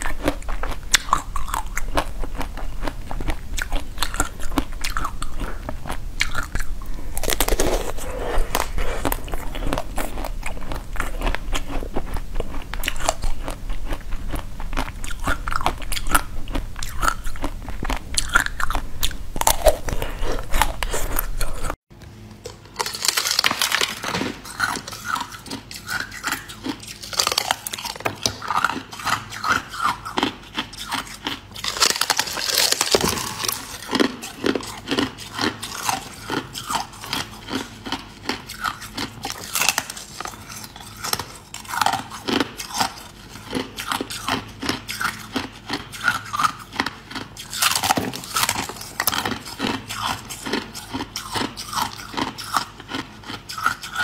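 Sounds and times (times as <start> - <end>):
crisp brittle crunching: 0.0 - 21.8, 22.5 - 54.0
soft chewing: 0.0 - 21.8, 22.4 - 54.0.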